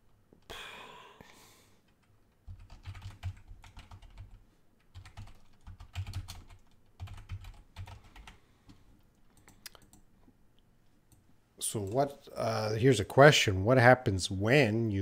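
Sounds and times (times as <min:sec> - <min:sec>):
keyboard typing: 0:01.9 - 0:10.1.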